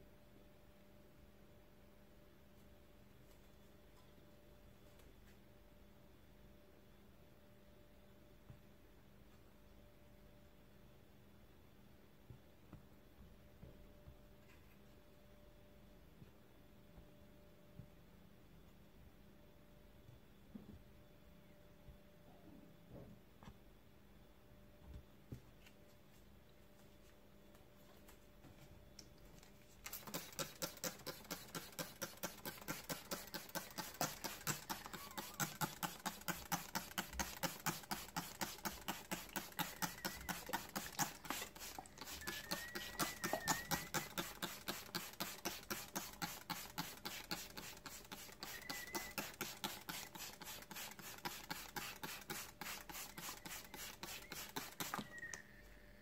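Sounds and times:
trigger spray bottle hissing: 29.8 - 55.4.

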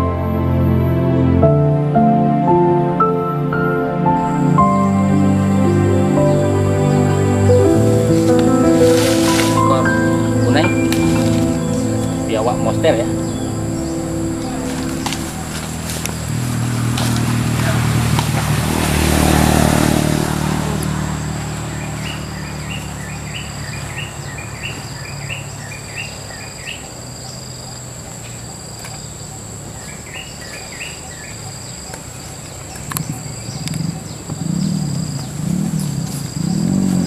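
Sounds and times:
high insect drone: 0.0 - 37.0
low engine hum: 0.0 - 37.0
bird chirping: 3.4 - 37.0.

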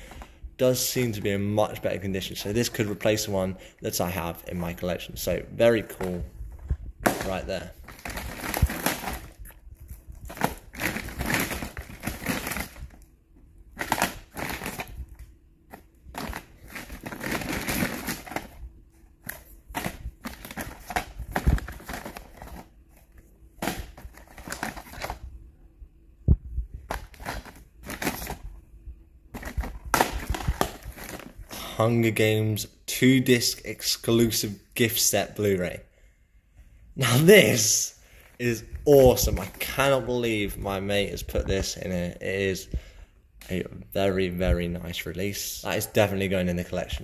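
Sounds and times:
plastic cases clacking together: 7.0 - 9.4, 10.3 - 13.0, 13.8 - 15.0, 15.7 - 18.6, 19.2 - 22.7, 23.6 - 25.2, 26.9 - 28.4, 29.3 - 31.4
woven plastic bag rustling: 7.0 - 13.1, 13.7 - 18.6, 19.2 - 25.2, 26.8 - 28.4, 29.3 - 31.5.

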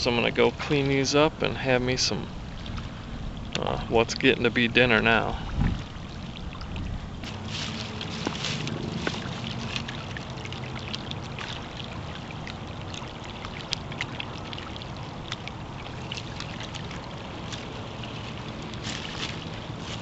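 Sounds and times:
water lapping at rocky shore: 0.0 - 20.0
small splashes: 2.4 - 4.3, 5.3 - 20.0
water dripping: 5.7 - 20.0.

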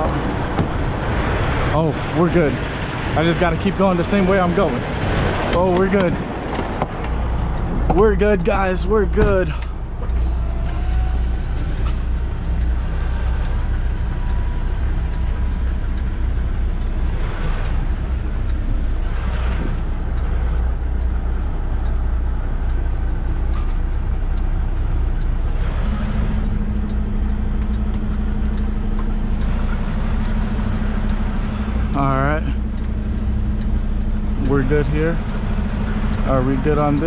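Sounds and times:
diesel engine idling: 0.0 - 37.0
steady low hum: 0.0 - 37.0
air brake hisses: 10.2 - 14.9.

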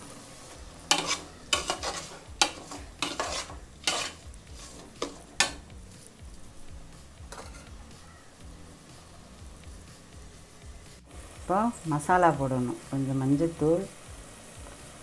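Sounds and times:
metal spatula scraping metal pot: 0.8 - 5.7, 7.3 - 7.8.

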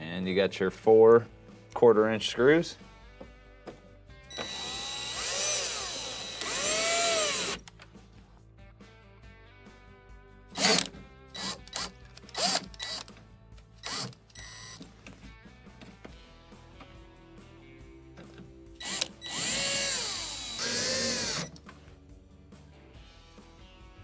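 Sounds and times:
cordless drill motor whine: 4.3 - 7.6, 13.8 - 14.8, 18.8 - 21.5.

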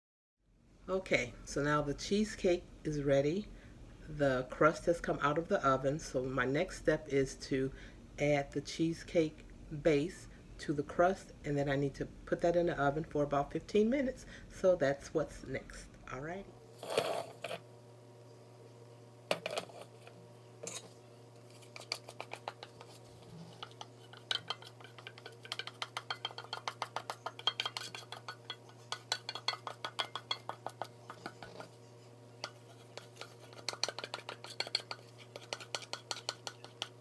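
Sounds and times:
steady low hum: 0.4 - 37.0
spatula scraping a metal bowl: 19.4 - 37.0.

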